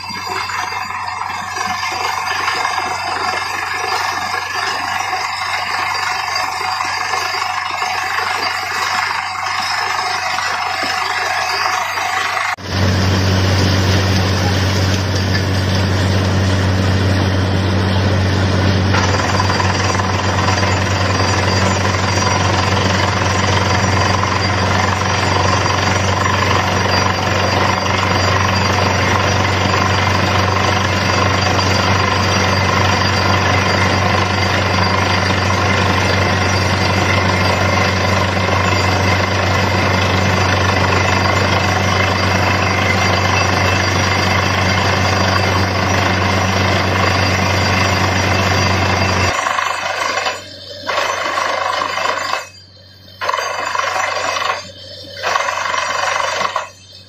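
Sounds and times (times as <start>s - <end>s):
drilling rig mechanical din: 0.0s - 57.0s
low engine drone: 9.6s - 49.4s.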